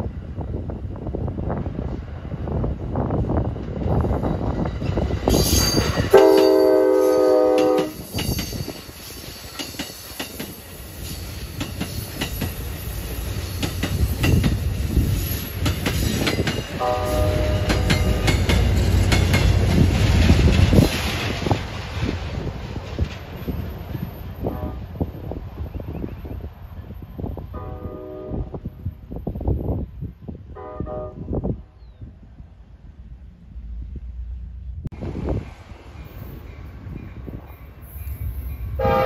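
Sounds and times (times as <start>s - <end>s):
train rumbling past: 0.0s - 39.0s
train air horn: 6.1s - 8.1s, 16.8s - 18.4s, 24.4s - 25.0s, 27.5s - 28.7s, 30.6s - 31.4s, 38.8s - 39.0s.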